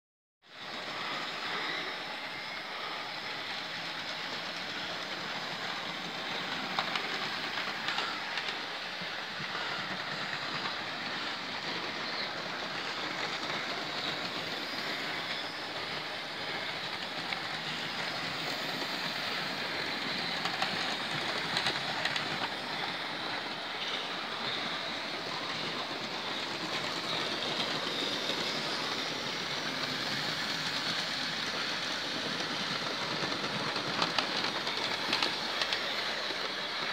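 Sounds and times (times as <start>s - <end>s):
model trains whirring and rattling: 0.5s - 36.9s.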